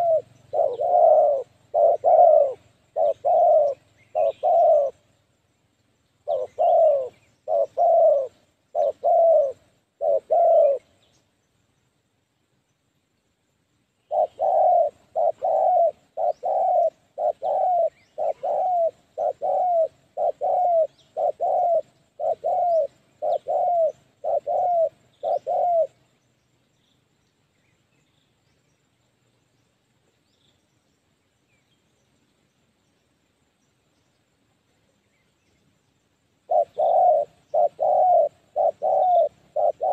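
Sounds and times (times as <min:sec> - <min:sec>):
dove cooing: 0:00.0 - 0:05.2, 0:06.2 - 0:11.0, 0:14.1 - 0:26.1, 0:36.4 - 0:39.9.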